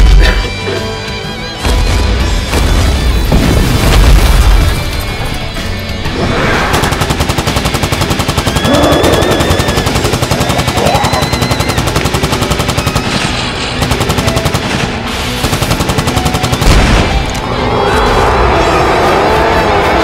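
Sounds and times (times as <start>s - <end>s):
music: 0.0s - 20.0s
rapid automatic gunfire: 6.7s - 17.2s.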